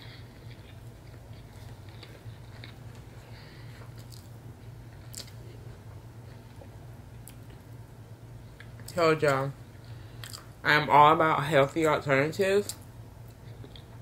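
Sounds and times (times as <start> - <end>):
person chewing food: 0.0 - 7.7, 9.7 - 10.5, 12.7 - 14.0
steady low hum: 0.0 - 14.0.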